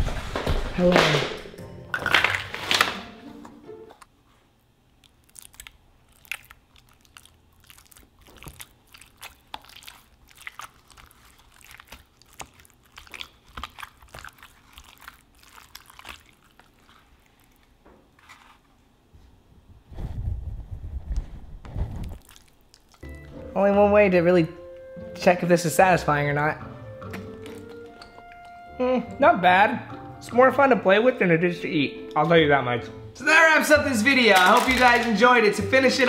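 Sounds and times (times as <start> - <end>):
gel squishing and crackling: 4.8 - 18.8, 22.0 - 23.5, 27.0 - 28.6, 34.2 - 35.2.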